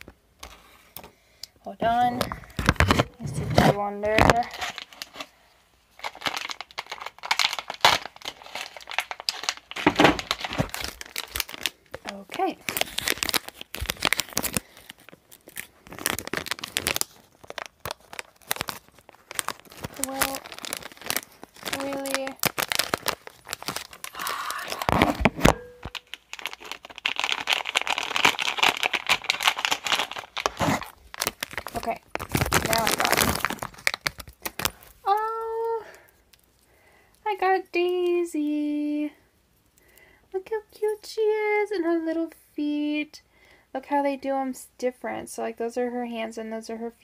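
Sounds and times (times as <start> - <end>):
plastic wrapper crinkling: 1.8 - 39.1.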